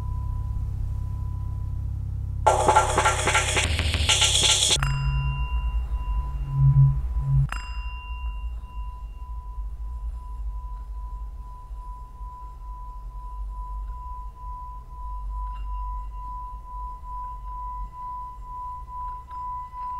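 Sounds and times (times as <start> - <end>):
singing bowl ringing: 4.8 - 19.9.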